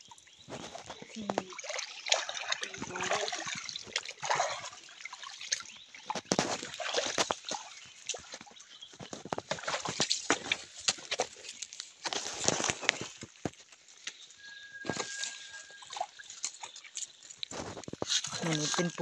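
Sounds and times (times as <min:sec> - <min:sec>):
boots splashing through water: 0:00.3 - 0:19.0.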